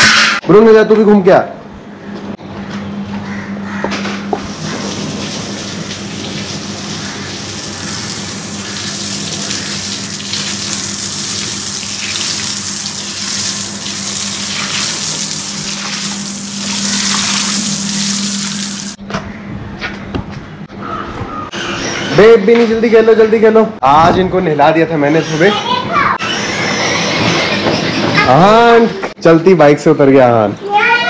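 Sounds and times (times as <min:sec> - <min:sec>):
steady low hum: 0:01.4 - 0:22.1
hose water spraying on tiles: 0:04.5 - 0:19.0.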